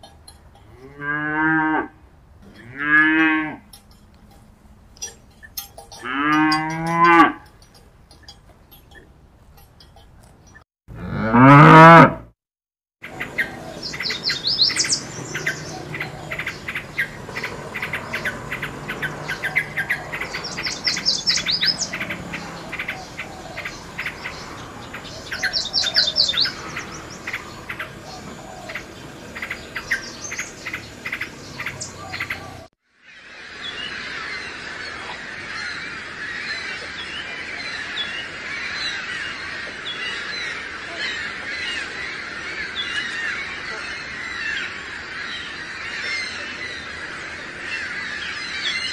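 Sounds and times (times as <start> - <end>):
cow mooing: 0.7 - 3.7, 5.9 - 7.5, 10.9 - 12.3
chatter of many birds: 13.0 - 48.9
bird singing bubbly trills: 13.1 - 32.7.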